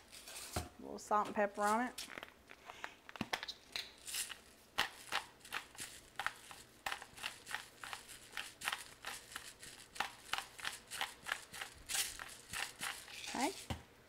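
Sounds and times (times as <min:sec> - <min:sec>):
spice grinder crunching: 0:03.8 - 0:13.7.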